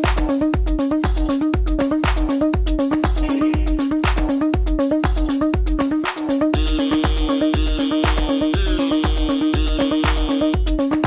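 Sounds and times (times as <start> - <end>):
electronic dance music: 0.0 - 11.0
kick drum: 0.0 - 11.0
synth riff: 2.9 - 4.5, 6.0 - 11.0.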